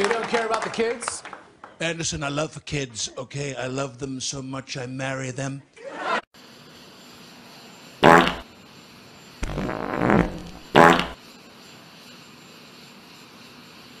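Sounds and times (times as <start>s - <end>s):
comedy fart sound effect: 8.0s - 8.4s, 9.4s - 11.2s.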